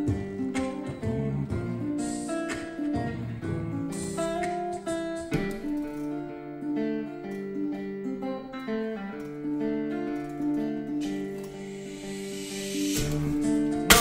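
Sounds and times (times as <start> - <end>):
acoustic guitar playing: 0.0 - 14.0.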